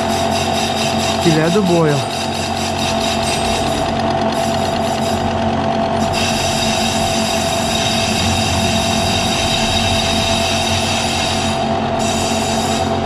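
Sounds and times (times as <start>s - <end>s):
milling machine cutting metal: 0.0s - 13.0s
high whining tones: 1.1s - 13.0s.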